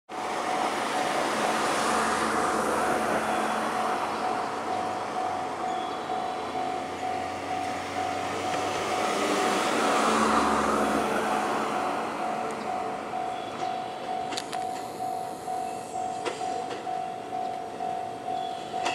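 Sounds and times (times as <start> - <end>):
electric train running slowly: 0.1 - 18.9
thin steady tone: 11.7 - 18.9.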